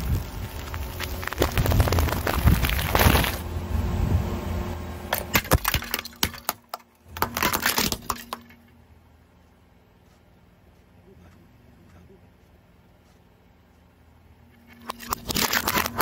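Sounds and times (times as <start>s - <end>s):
tyre crushing snack packets: 0.0s - 3.4s, 5.1s - 8.5s, 14.8s - 16.0s
plate cracking and shattering: 0.2s - 3.4s, 5.1s - 8.6s, 14.6s - 16.0s.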